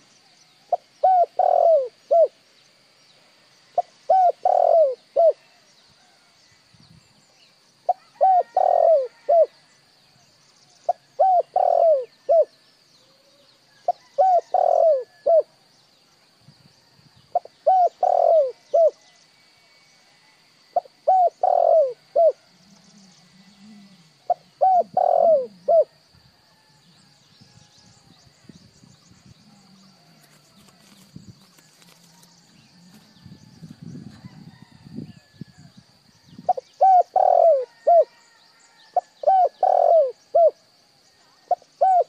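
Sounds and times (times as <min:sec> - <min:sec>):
dove cooing: 0:00.7 - 0:02.4, 0:03.8 - 0:05.4, 0:07.9 - 0:09.6, 0:10.9 - 0:12.5, 0:13.2 - 0:15.5, 0:17.3 - 0:19.0, 0:20.8 - 0:26.0, 0:36.4 - 0:38.2, 0:39.0 - 0:40.6, 0:41.5 - 0:42.0.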